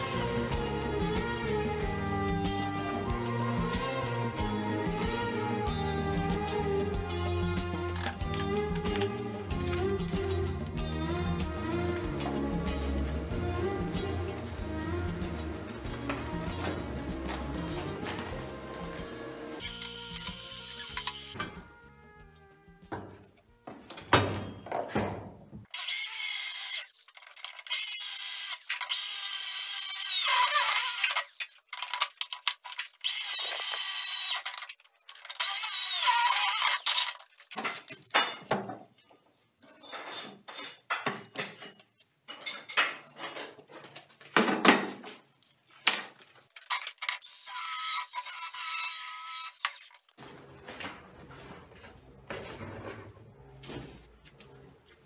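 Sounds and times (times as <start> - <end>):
tools clinking and scraping: 16.0 - 18.3, 19.6 - 21.7, 31.1 - 35.5, 36.6 - 44.4
electric drill whining: 19.5 - 21.4, 25.8 - 27.0, 27.7 - 31.4, 33.0 - 34.6, 35.4 - 37.1, 47.2 - 49.9.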